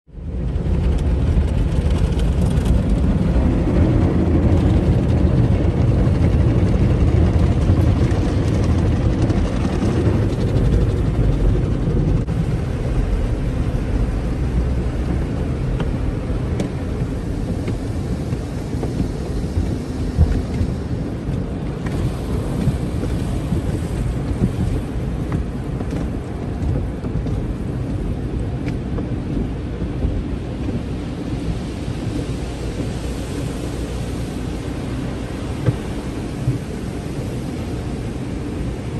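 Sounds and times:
steady low rumble: 0.0 - 38.9
water spraying and drumming: 0.1 - 38.9.

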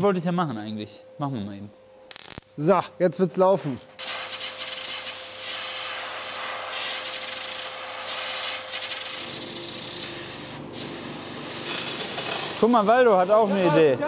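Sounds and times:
rushing air hiss: 4.0 - 9.1
air tool whine: 4.0 - 13.9.

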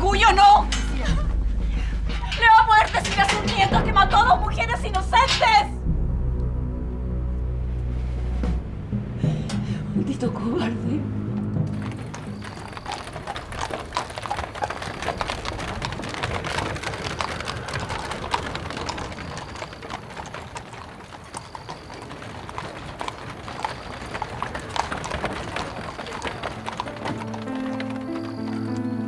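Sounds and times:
horse hooves clip-clopping: 0.0 - 5.7, 11.7 - 29.0
carriage rumbling: 0.0 - 6.1, 11.3 - 29.0.

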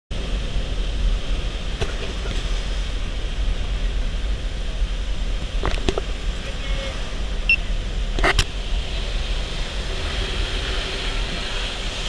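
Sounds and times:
aircraft engine noise: 0.2 - 12.0
wind rushing: 2.4 - 12.0.

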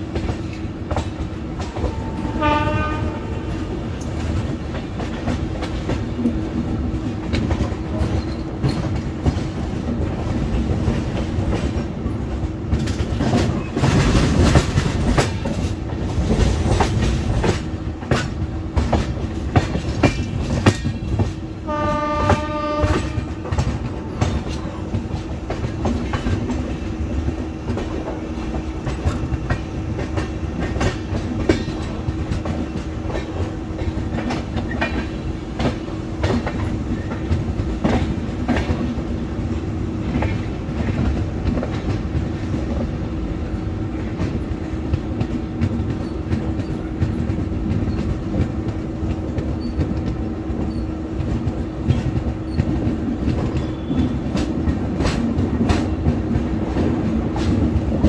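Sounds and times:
train wheels clattering on rails: 0.0 - 58.0
train horn: 1.6 - 3.9, 21.5 - 24.8.

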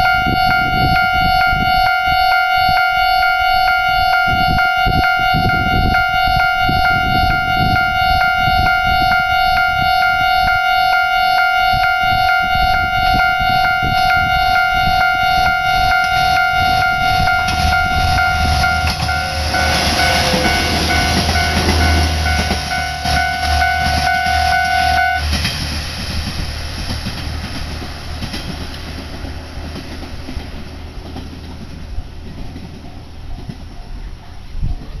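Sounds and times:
level-crossing warning bell ringing: 0.0 - 25.4
railcar engine rumble: 0.0 - 35.0
train wheel noise: 3.3 - 35.0.

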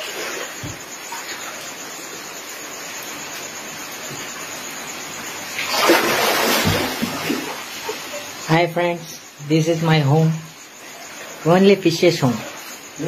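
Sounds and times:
floodwater hissing: 5.4 - 9.0
water splash: 5.6 - 8.0.

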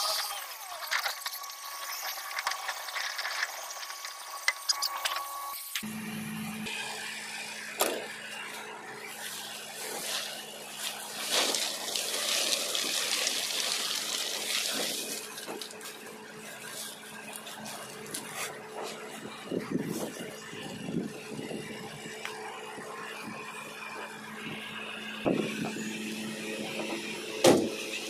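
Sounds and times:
plastic sacks rustling and crinkling: 9.2 - 19.2.

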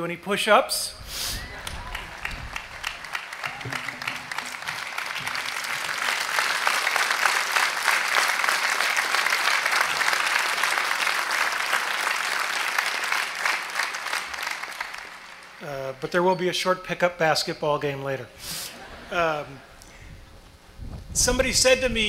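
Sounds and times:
audience applauding: 1.3 - 15.8.

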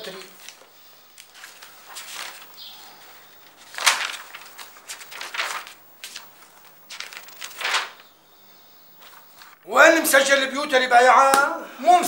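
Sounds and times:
paper pages rustling: 0.0 - 8.2, 8.9 - 9.7.

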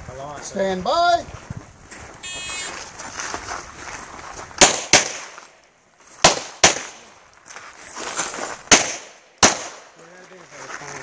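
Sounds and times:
pistol shots with echo: 4.6 - 5.3, 6.2 - 7.0, 8.7 - 9.9.

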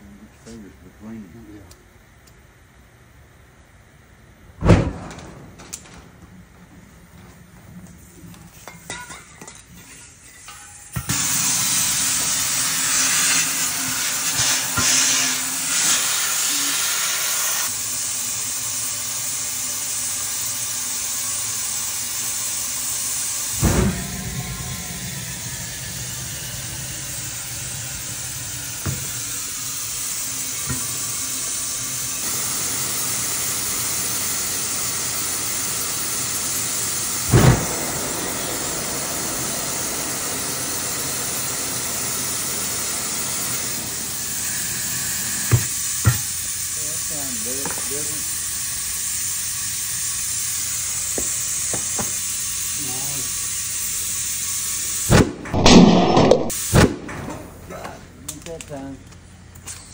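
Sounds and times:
compressed air hissing from hose: 9.8 - 55.3, 56.1 - 57.0.

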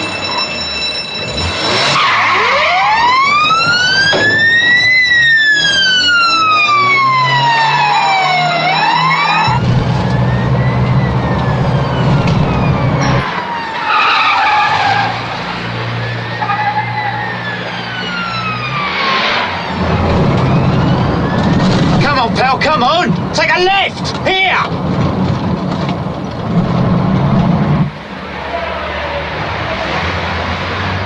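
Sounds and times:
police siren wailing: 0.0 - 22.6
car engines revving hard: 1.3 - 23.3, 24.0 - 31.0.

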